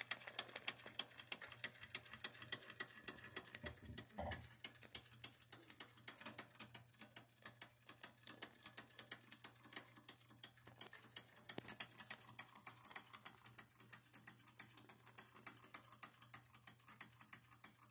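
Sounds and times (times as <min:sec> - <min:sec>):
toy steam engine ticking: 0:00.0 - 0:17.9.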